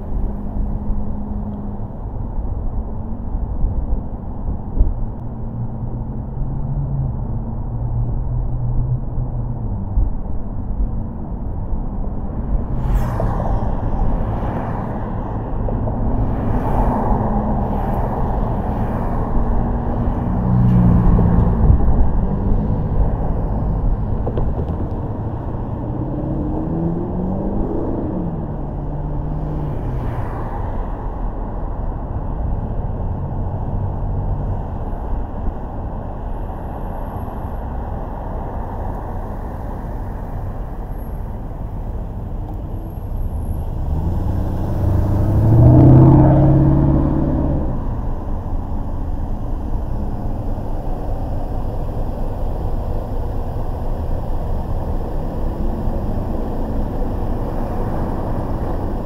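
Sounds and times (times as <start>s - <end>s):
road and traffic noise: 0.0s - 59.0s
vehicle engine passing close: 37.0s - 59.0s.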